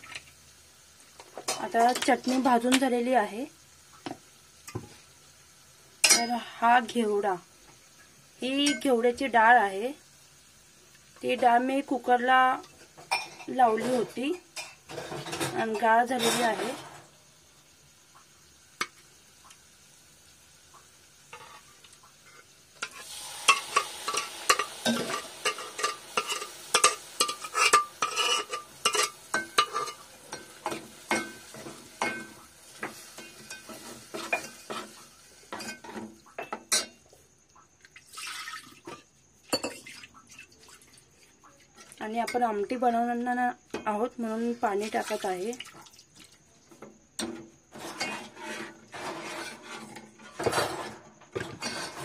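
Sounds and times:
beans sizzling in hot oil: 0:00.0 - 0:52.0
metal ladle scraping pots: 0:22.3 - 0:36.9, 0:47.3 - 0:52.0.

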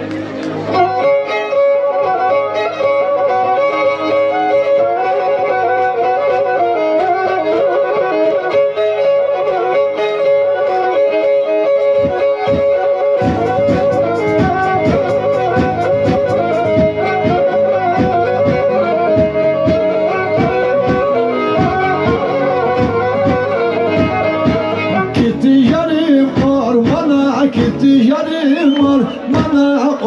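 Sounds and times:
bowed fiddle folk melody: 0:00.0 - 0:30.0
rhythmic pulse: 0:11.7 - 0:28.0.

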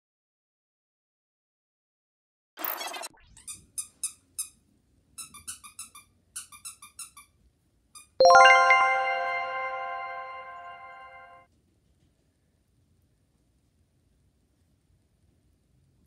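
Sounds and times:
high bell-like notes in runs: 0:08.2 - 0:11.3
loud chime chord: 0:08.2 - 0:11.4.

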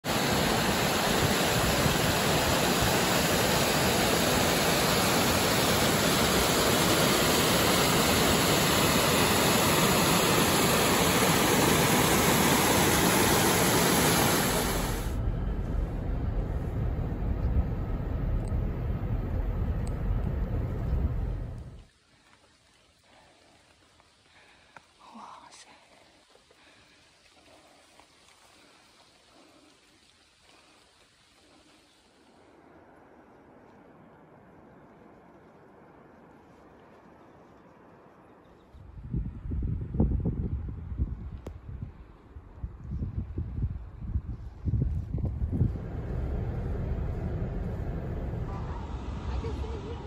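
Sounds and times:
stream rushing over rocks: 0:00.0 - 0:15.2
low rumble: 0:11.2 - 0:21.9, 0:39.0 - 0:50.0.

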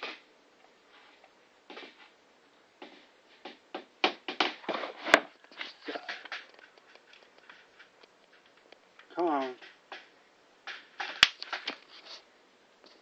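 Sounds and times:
rustling and knocking of handling: 0:02.8 - 0:12.2.

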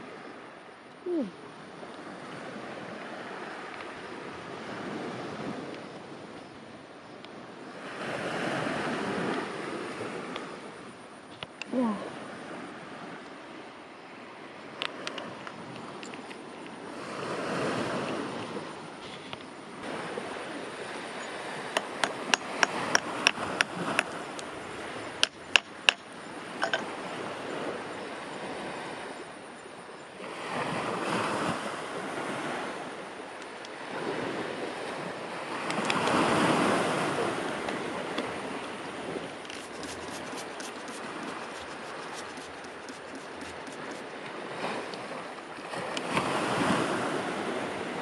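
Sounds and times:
wind gusts: 0:00.0 - 0:48.0
hammer striking chisel on rock: 0:21.8 - 0:23.4.

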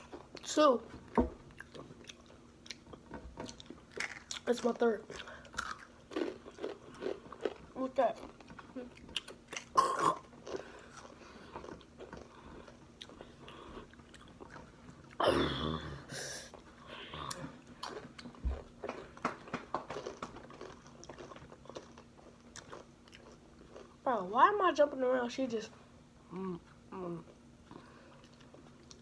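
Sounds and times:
crunching tortilla chips: 0:03.5 - 0:13.3, 0:17.7 - 0:24.0.

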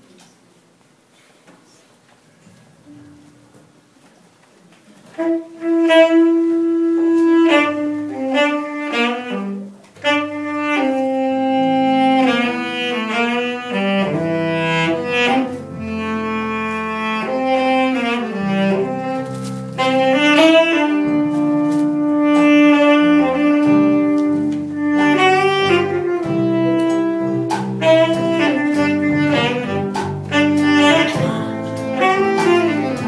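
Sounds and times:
low accompaniment: 0:05.1 - 0:33.0
slow saxophone melody: 0:05.1 - 0:33.0.

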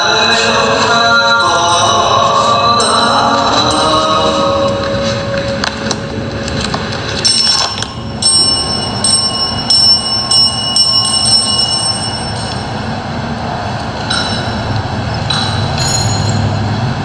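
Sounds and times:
high-pitched bell ringing: 0:01.3 - 0:06.0, 0:07.2 - 0:13.0, 0:14.1 - 0:16.7.

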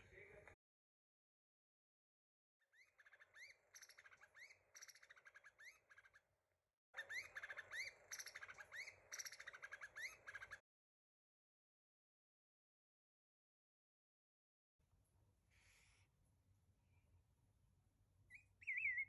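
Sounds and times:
bird rapid chattering: 0:02.8 - 0:06.2, 0:07.0 - 0:10.6
bird whistled rising notes: 0:07.0 - 0:10.6, 0:18.3 - 0:19.0.

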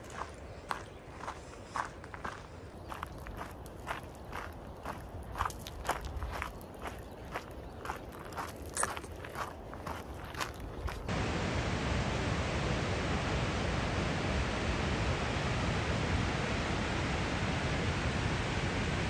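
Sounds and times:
footsteps on trail: 0:00.0 - 0:11.1
river rushing roar: 0:11.1 - 0:19.0.

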